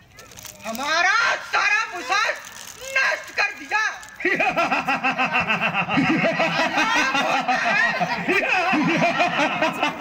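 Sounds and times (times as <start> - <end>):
man laughing into microphone: 4.2 - 10.0.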